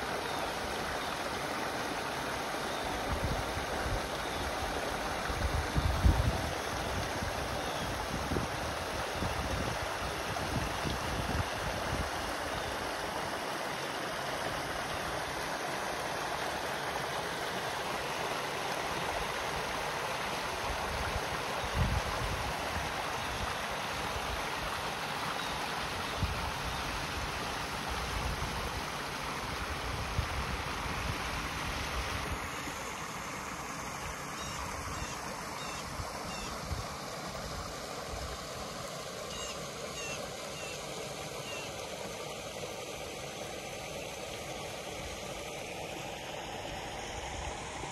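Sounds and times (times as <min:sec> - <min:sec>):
waterfall splashing: 0:27.0 - 0:47.9.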